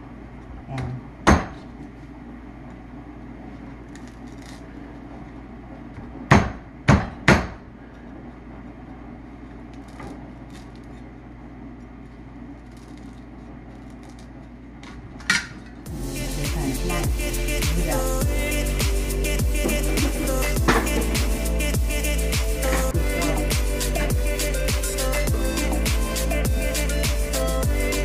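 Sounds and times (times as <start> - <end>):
music: 15.9 - 28.0.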